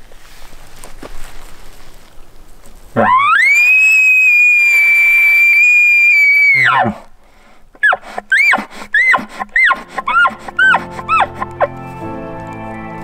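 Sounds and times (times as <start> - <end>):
elk call whistle: 3.0 - 7.1, 7.8 - 11.8.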